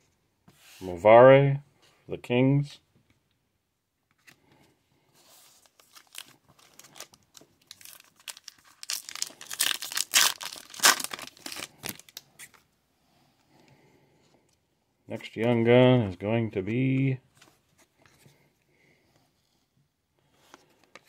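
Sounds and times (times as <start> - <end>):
foil wrapper crinkling and tearing: 5.6 - 12.3.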